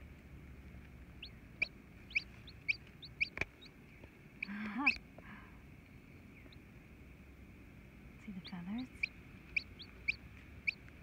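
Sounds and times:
hen clucking: 1.2s - 3.7s, 4.4s - 5.0s, 8.3s - 10.9s
chick peeping: 1.2s - 5.0s, 8.3s - 11.0s.

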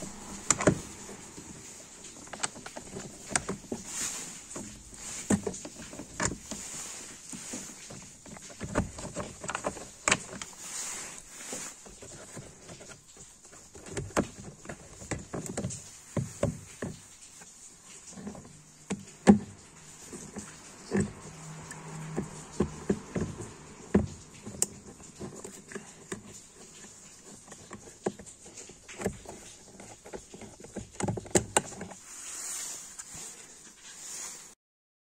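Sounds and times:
plastic clicks and knocks: 12.0s - 32.0s.

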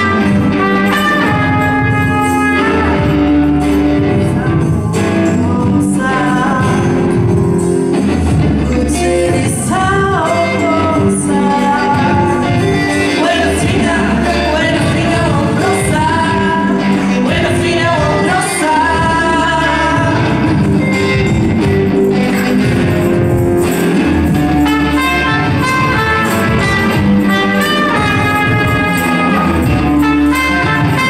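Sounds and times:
electric guitar: 0.0s - 31.0s
keyboard: 0.0s - 31.0s
woman singing: 2.4s - 7.6s, 8.6s - 20.9s.

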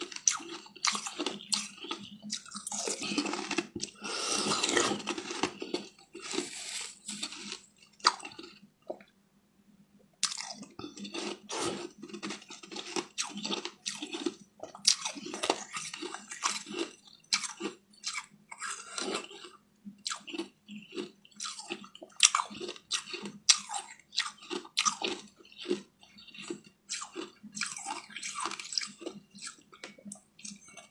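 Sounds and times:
person chewing with lip smacks: 0.2s - 9.1s.

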